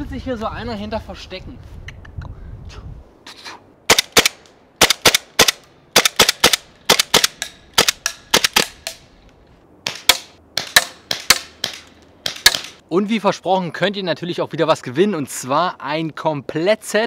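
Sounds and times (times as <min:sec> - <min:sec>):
airsoft pistol shots: 0:03.9 - 0:09.0, 0:09.8 - 0:12.8.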